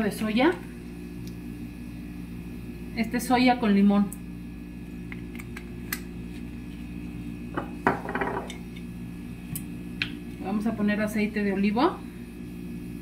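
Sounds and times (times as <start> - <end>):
bottles knocking on stone countertop: 7.5 - 8.6.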